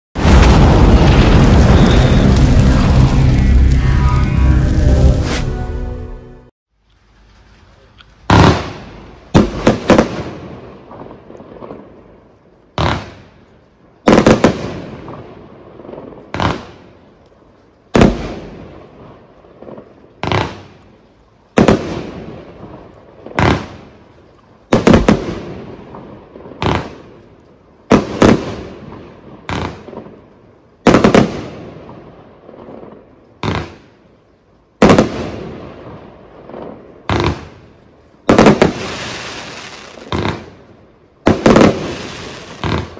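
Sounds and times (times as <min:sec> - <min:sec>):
fireworks reports: 0:00.2 - 0:06.4, 0:07.6 - 0:11.7, 0:24.7 - 0:27.2, 0:34.8 - 0:42.9.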